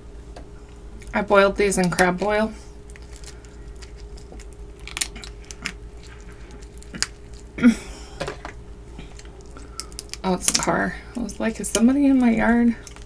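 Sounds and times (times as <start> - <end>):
faint steady hum: 0.0 - 13.0
prawn shell crackling as peeled: 1.9 - 7.6, 9.0 - 13.0
chewing: 2.8 - 7.6, 8.9 - 10.2.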